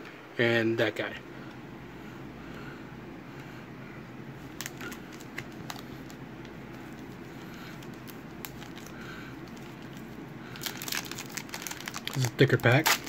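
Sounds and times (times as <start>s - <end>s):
steady low hum: 0.0s - 13.0s
foil wrapper crackling: 4.4s - 13.0s.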